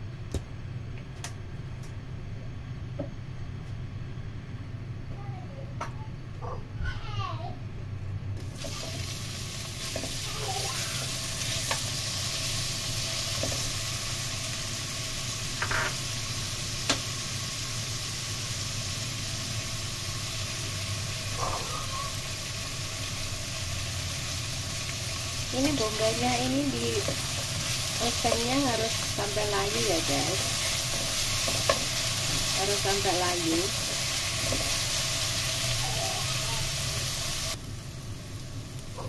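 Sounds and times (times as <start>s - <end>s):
onions sizzling in hot oil: 8.4s - 39.0s.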